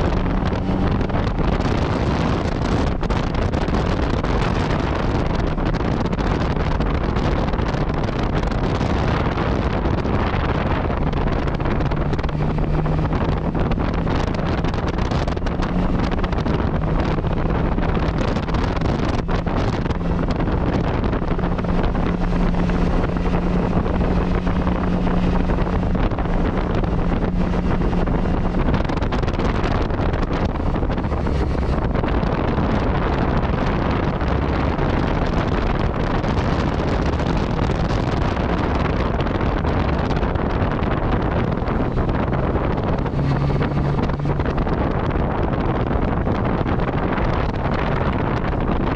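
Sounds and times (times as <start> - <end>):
motorcycle engine running: 0.0 - 48.9
wind rush on microphone: 0.0 - 48.9.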